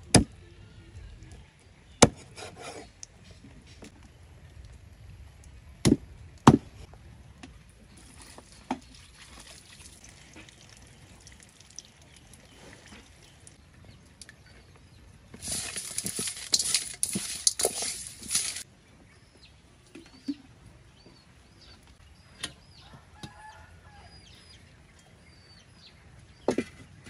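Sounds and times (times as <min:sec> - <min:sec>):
raw chicken scrubbed in steel bowl: 0:15.4 - 0:18.6.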